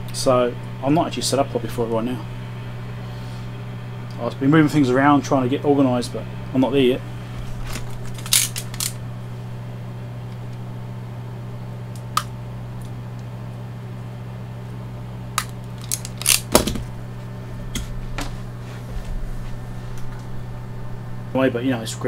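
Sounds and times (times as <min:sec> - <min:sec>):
steady low hum: 0:00.0 - 0:22.0
cable connector clicks and rattles: 0:07.7 - 0:09.0, 0:15.4 - 0:16.8.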